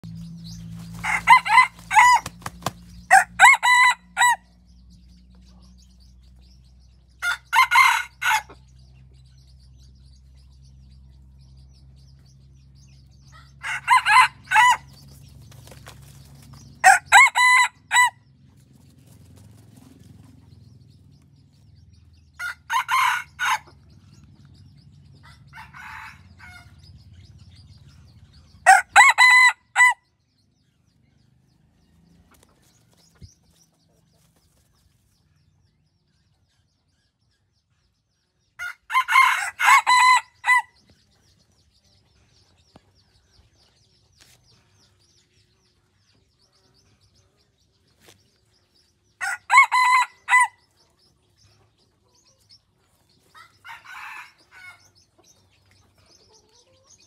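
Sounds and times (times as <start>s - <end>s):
rooster crowing: 1.0s - 2.4s, 3.1s - 4.5s, 7.2s - 8.6s, 13.6s - 14.9s, 16.8s - 18.2s, 22.4s - 23.7s, 25.2s - 26.8s, 28.6s - 30.0s, 38.6s - 40.8s, 49.2s - 50.6s, 53.6s - 54.8s.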